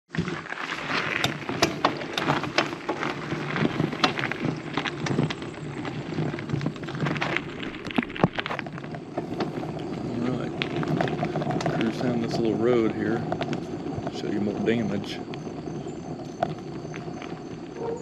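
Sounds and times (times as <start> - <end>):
bicycle tyres rolling on asphalt: 0.1 - 18.0.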